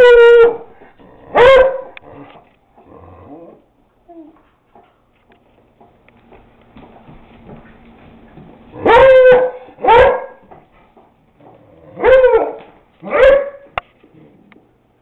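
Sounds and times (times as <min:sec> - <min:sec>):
dog barking: 0:01.3 - 0:02.0, 0:08.8 - 0:10.5, 0:12.0 - 0:13.7.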